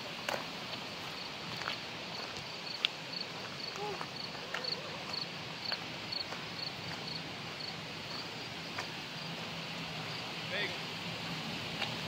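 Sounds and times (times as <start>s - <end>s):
steady outdoor hiss: 0.0s - 12.0s
footsteps on gravel: 0.1s - 9.0s
insect chirping: 0.6s - 10.5s.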